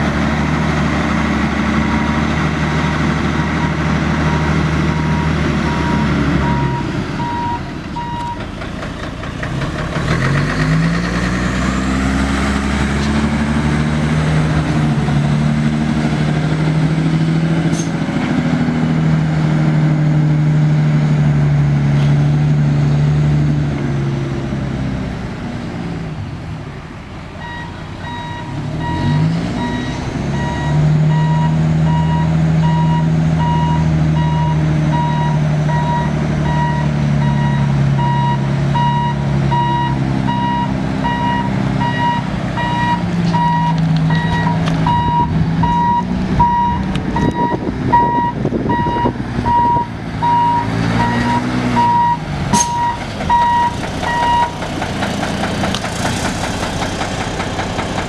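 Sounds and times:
diesel truck engine: 0.0s - 58.0s
backup alarm beeping: 3.6s - 8.4s, 27.4s - 54.6s.

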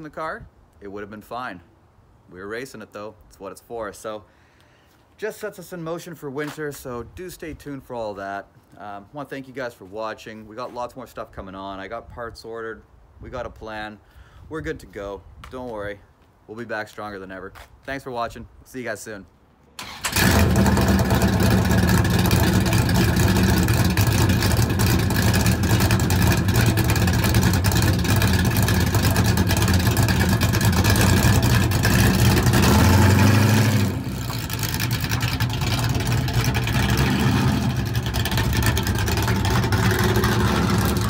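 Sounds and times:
car engine idling and revving: 20.1s - 41.0s.

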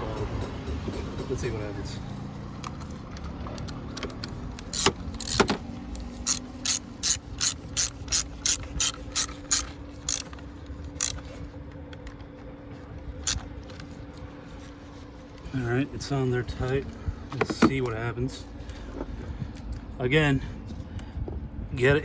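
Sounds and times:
ratchet wrench clicking: 3.6s - 11.2s.

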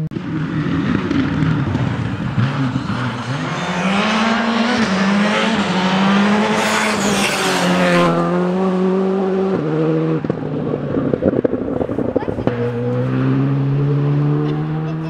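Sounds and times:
rally car engine at high revs: 0.0s - 15.0s
exhaust pops: 10.2s - 13.3s.

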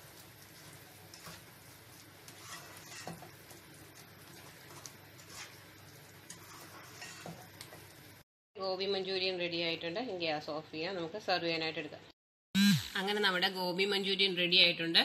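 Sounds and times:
spatula scraping a pan: 0.0s - 7.6s.

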